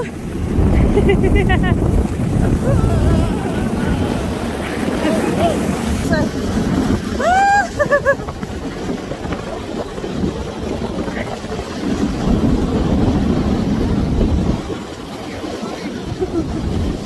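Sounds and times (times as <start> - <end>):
snow tubes rumbling over snow: 0.0 - 17.0
wind on microphone: 0.0 - 17.0
person laughing: 0.7 - 5.8, 7.2 - 8.4, 16.1 - 17.0
person crying out: 2.4 - 4.2, 7.2 - 8.2.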